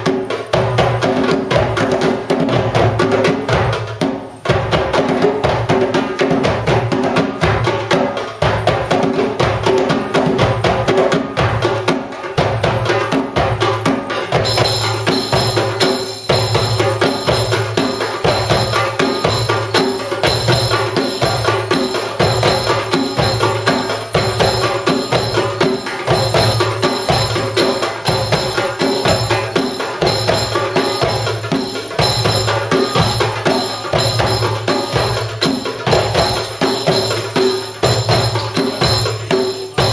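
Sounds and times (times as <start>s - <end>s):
hand drums playing rhythm: 0.0s - 39.9s
bright metallic jingling: 13.5s - 39.9s.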